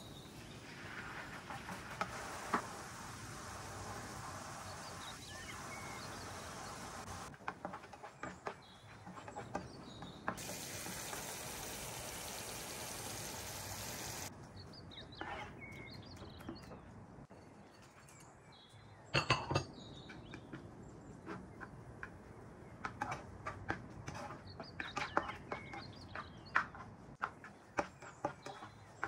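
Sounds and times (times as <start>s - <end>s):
sauce sizzling in a frying pan: 0.2s - 7.3s, 10.4s - 14.3s.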